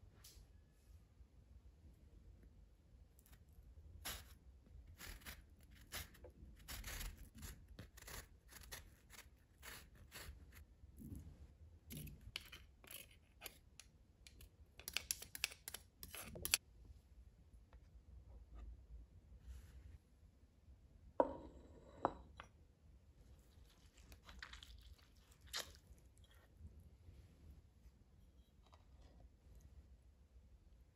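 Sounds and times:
zester grater rasping on peel: 0:04.9 - 0:10.6.

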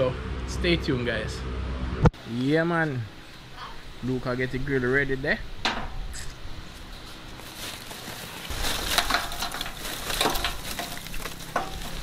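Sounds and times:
charcoal clattering into metal grill: 0:05.6 - 0:06.1, 0:08.5 - 0:12.0.

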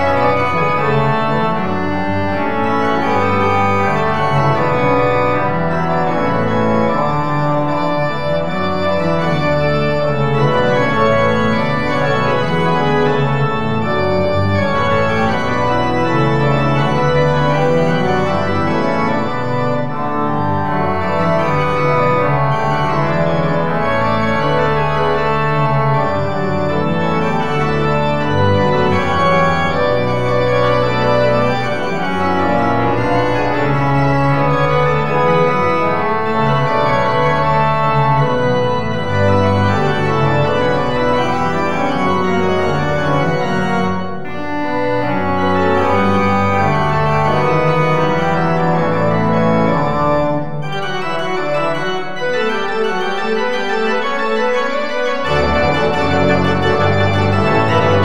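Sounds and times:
church organ chords: 0:00.0 - 0:58.0
deep organ pedal bass: 0:00.0 - 0:58.0.

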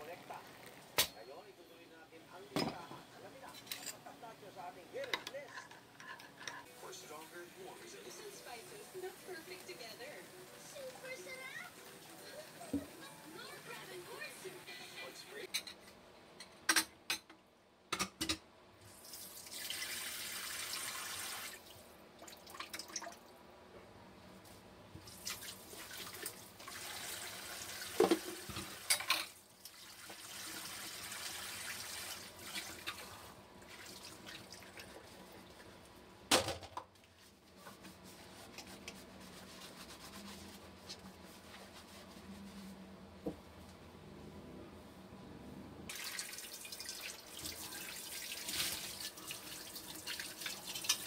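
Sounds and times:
dishes clinking in sink: 0:02.5 - 0:02.9
tap running water: 0:25.0 - 0:35.6, 0:45.9 - 0:51.0.

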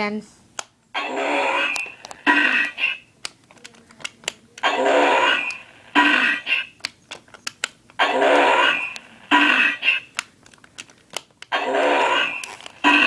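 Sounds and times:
toy electronic voice: 0:04.6 - 0:06.7
sharp clicks and knocks: 0:06.8 - 0:08.0.

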